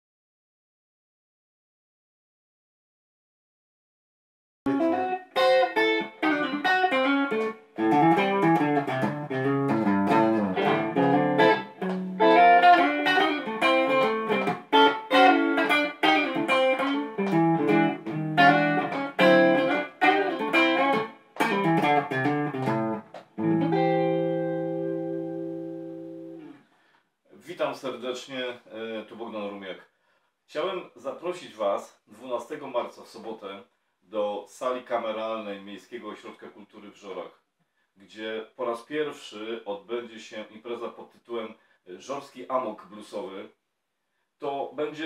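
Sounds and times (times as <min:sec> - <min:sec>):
electric guitar notes and chords: 0:04.7 - 0:26.6.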